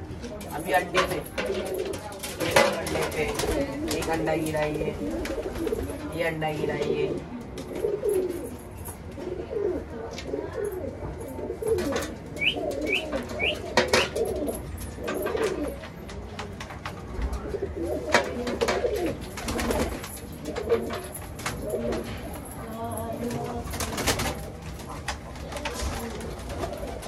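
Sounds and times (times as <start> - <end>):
pigeons cooing: 3.4 - 15.9, 17.3 - 22.4, 24.9 - 27.0.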